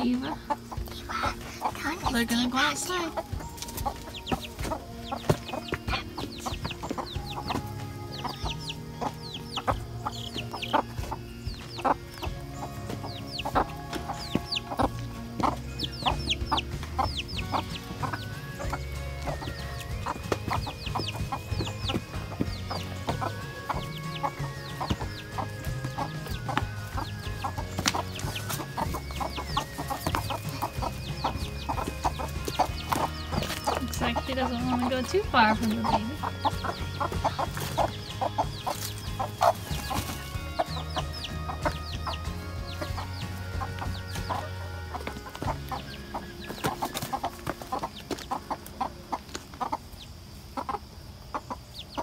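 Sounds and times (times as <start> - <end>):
background music: 0.0 - 52.0
chick peeping: 0.0 - 52.0
hens clucking: 0.0 - 52.0.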